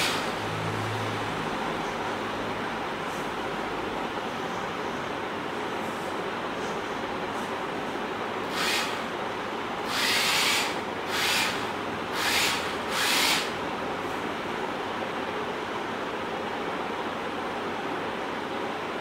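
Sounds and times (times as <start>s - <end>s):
small electric motors whirring: 8.5s - 9.0s, 9.9s - 13.6s.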